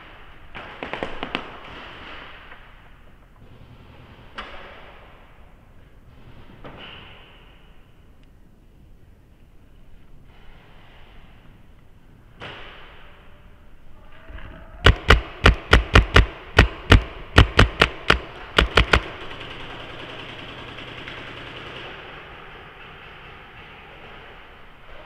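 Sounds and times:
paintball marker shots: 14.8s - 19.3s.

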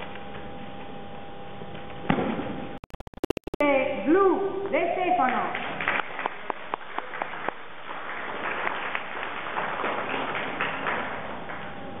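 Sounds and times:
audience clapping: 5.2s - 11.8s.

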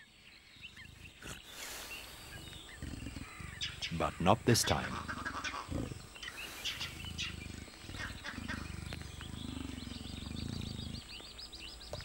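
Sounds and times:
bird chirps: 0.0s - 12.0s
large animal growling: 0.6s - 1.6s, 2.2s - 4.0s, 4.9s - 11.2s.

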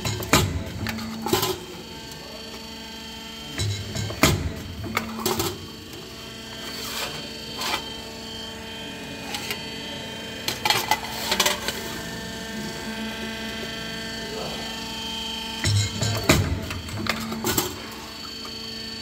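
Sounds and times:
press machine humming: 0.0s - 19.0s.

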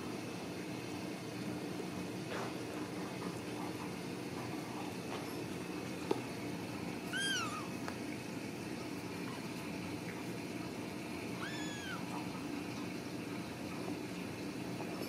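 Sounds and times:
cat meowing: 7.1s - 7.8s, 11.4s - 12.2s.

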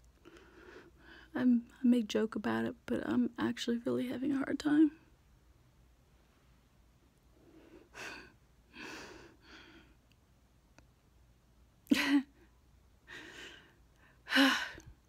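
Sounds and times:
woman breathing and sighing: 7.3s - 10.0s, 11.9s - 15.0s
woman breathy laugh: 11.9s - 12.4s.

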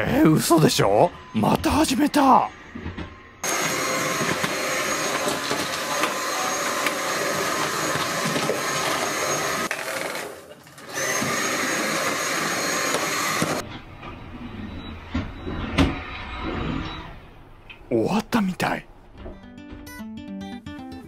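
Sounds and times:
stick vacuum high whine: 2.2s - 13.6s.

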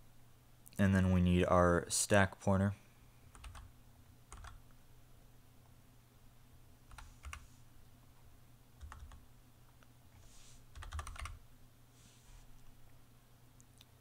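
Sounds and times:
faint low hum: 0.0s - 14.0s
keyboard typing: 3.3s - 3.7s, 4.3s - 4.6s, 6.9s - 7.5s, 8.8s - 9.2s, 10.7s - 11.4s.

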